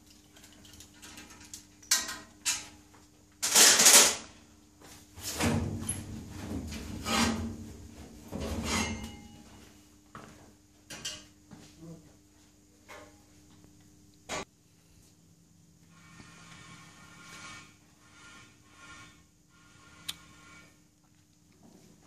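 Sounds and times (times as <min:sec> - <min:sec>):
metal tools clanking and rattling: 0:00.2 - 0:02.8, 0:08.4 - 0:09.4.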